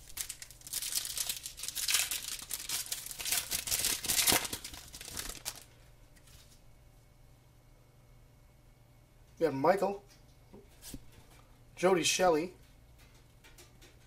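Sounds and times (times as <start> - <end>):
foil pack tearing and crinkling: 0.0 - 5.7.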